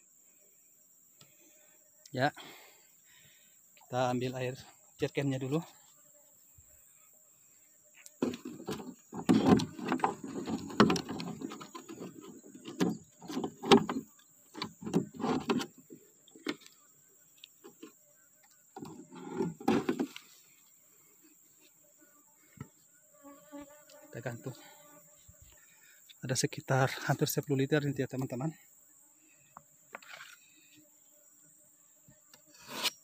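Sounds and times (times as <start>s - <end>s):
jerrycan knocking and scraping: 8.2s - 16.6s, 18.8s - 20.2s.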